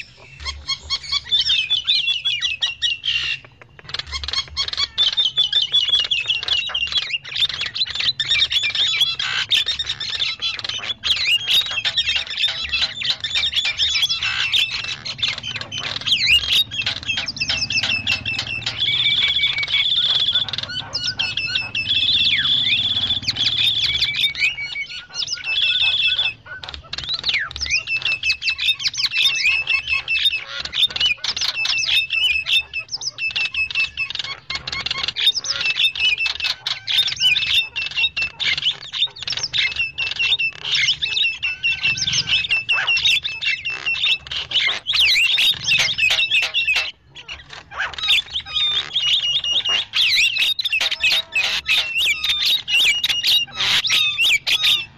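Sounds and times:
mynas chattering: 10.0 - 24.5.

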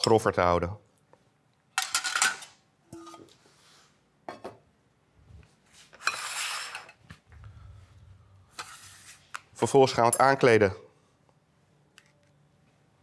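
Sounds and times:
plates scraping on steel counter: 5.9 - 7.0.

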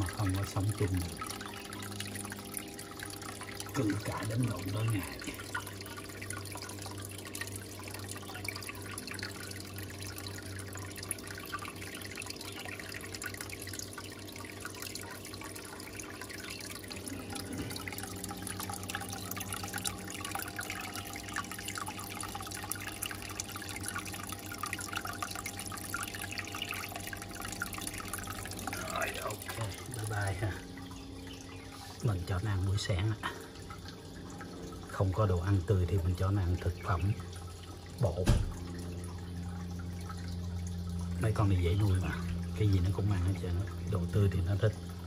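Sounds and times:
low hum: 0.0 - 45.0
water trickling and dripping: 0.0 - 45.0.

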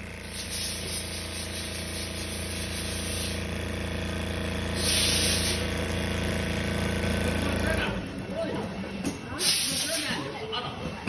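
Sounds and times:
motor hum: 0.0 - 9.0
quilting sewing machine running: 0.0 - 9.0
loud hiss: 0.2 - 3.5, 4.7 - 5.7, 9.4 - 10.1.

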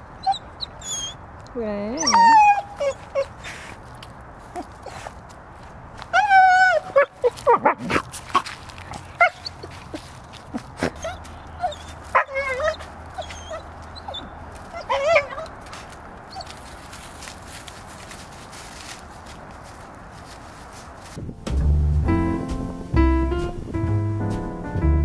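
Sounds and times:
dog whining and yipping: 0.2 - 1.2, 2.0 - 3.7, 6.1 - 7.8, 9.2 - 9.7, 10.9 - 15.5, 16.3 - 16.6
dry leaves rustling: 1.6 - 21.4.

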